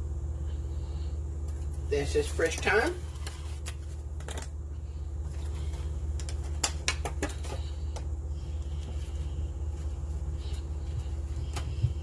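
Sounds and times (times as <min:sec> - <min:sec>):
steady low hum: 0:00.0 - 0:12.0
small items clicking and tapping: 0:05.3 - 0:08.1.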